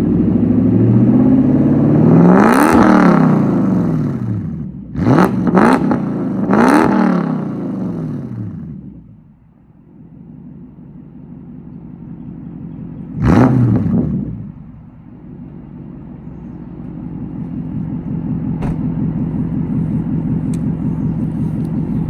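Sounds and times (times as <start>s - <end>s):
car engine idling: 7.4s - 22.0s.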